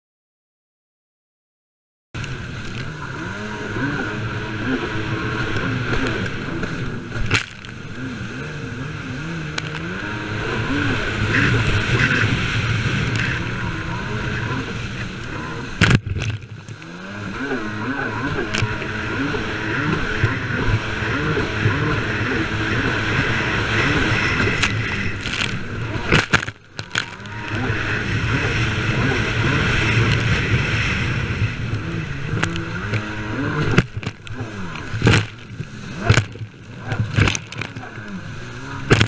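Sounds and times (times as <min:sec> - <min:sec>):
jet ski engine revving: 0:02.2 - 0:39.0
rushing water and spray: 0:02.2 - 0:39.0.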